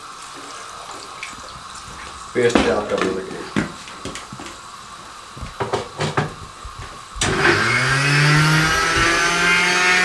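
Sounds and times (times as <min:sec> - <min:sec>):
blender motor grinding: 0:07.2 - 0:10.0.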